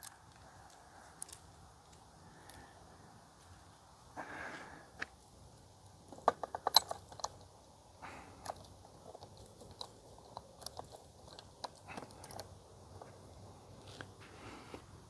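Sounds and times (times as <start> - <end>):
chainsaw chain clicking and rattling: 6.1 - 7.5, 8.2 - 13.1.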